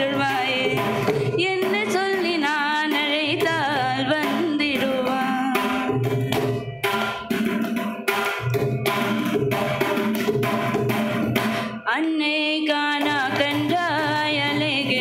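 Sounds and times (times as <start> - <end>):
woman singing with ornaments: 0.0 - 6.1, 11.9 - 15.0
mridangam drum strokes: 0.0 - 15.0.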